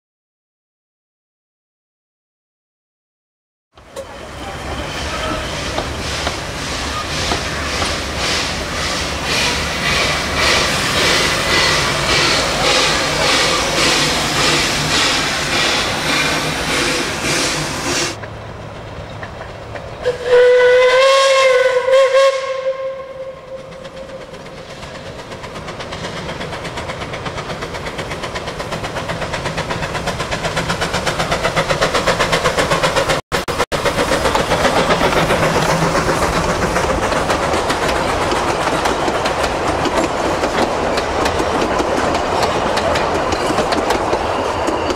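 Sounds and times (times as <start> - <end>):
train wheels clattering on rails: 3.8 - 20.2, 23.4 - 44.9
steam locomotive exhaust beats: 3.8 - 44.9
steam whistle blast: 20.0 - 24.2.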